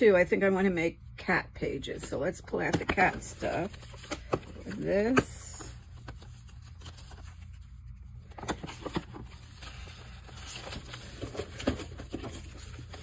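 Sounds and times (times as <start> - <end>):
paper rustling: 2.9 - 13.0.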